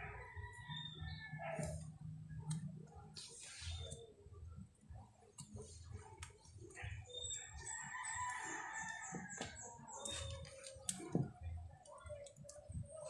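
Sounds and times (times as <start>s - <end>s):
rooster crowing: 0.0s - 1.7s, 7.4s - 9.6s
wires clicking: 7.6s - 13.0s.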